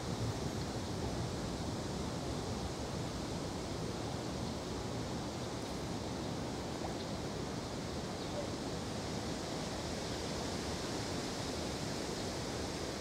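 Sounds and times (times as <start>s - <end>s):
wind-like outdoor hiss: 0.0s - 13.0s.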